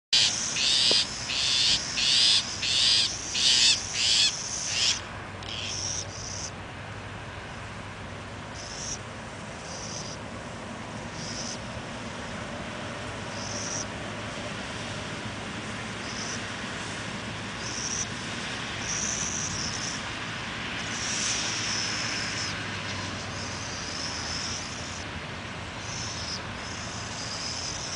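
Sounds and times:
owls screeching: 0:00.2 - 0:06.5.

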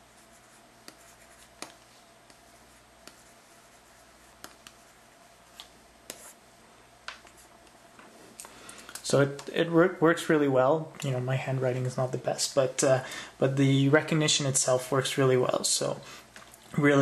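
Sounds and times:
stylus tapping on screen: 0:00.8 - 0:03.3, 0:04.4 - 0:04.9.

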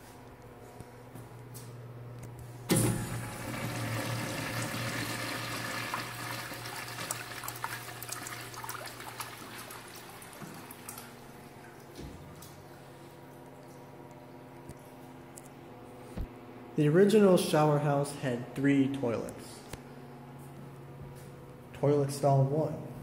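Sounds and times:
urinal flushing: 0:02.7 - 0:12.6
water rushing through bowl: 0:03.4 - 0:11.1.

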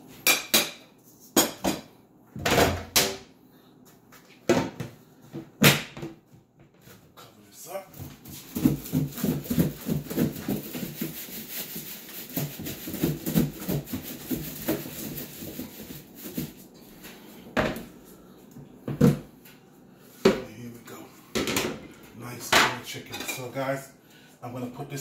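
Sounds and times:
plastic container shaking rattle: 0:08.4 - 0:16.6.

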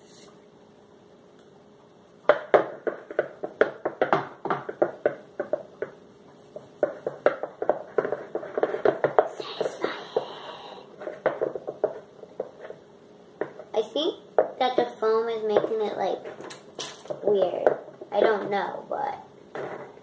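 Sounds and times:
plastic spoon stirring slime: 0:02.3 - 0:12.8.

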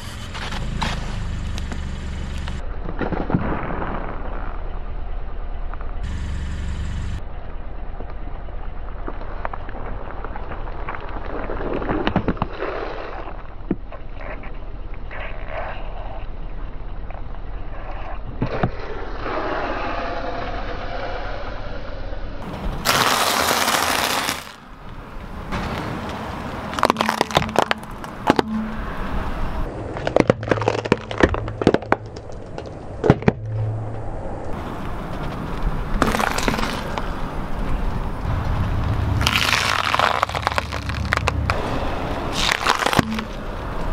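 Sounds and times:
carrots cracking under a tyre: 0:08.9 - 0:16.3, 0:22.4 - 0:28.9, 0:29.6 - 0:33.6, 0:34.8 - 0:43.9.

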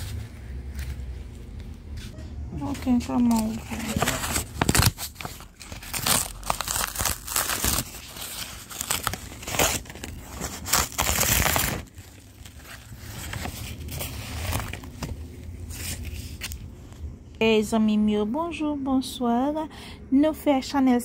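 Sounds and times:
cardboard rustling: 0:03.2 - 0:16.6
cardboard scraping and tearing: 0:03.3 - 0:15.1.

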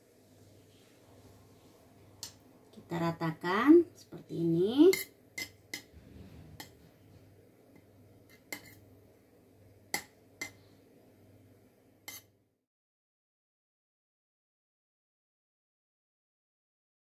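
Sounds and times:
spoon clinking on metal pan: 0:04.9 - 0:05.9
spoon scraping sauce on dough: 0:04.9 - 0:05.9, 0:07.7 - 0:08.9, 0:12.1 - 0:12.3.

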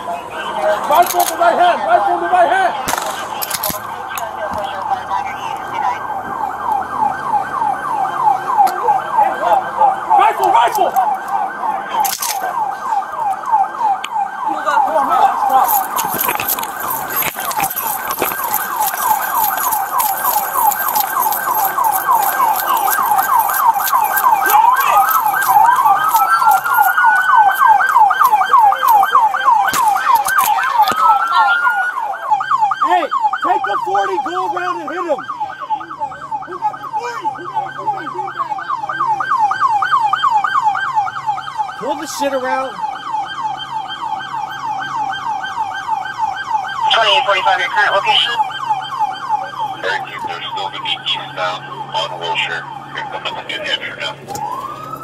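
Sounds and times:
police siren yelp: 0:00.0 - 0:55.0
rising siren wails: 0:00.0 - 0:55.0.

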